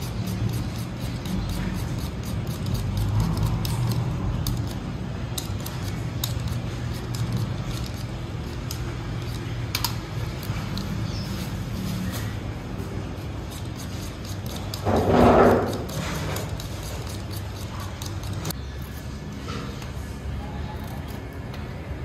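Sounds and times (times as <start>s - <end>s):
peeler scraping potatoes: 0.0s - 19.2s.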